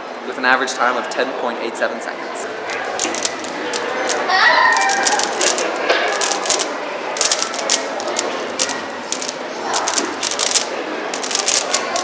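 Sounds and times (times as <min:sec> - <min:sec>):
plastic puzzle cube clicking: 0:02.7 - 0:12.0.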